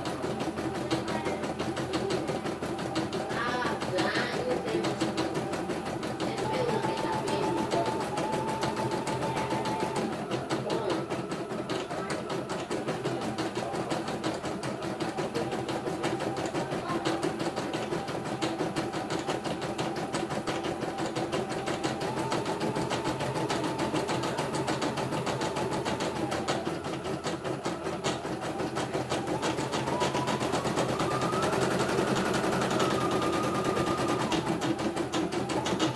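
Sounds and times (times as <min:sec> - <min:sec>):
embroidery machine needle clatter: 0:00.0 - 0:35.9
motor whine: 0:00.0 - 0:35.9.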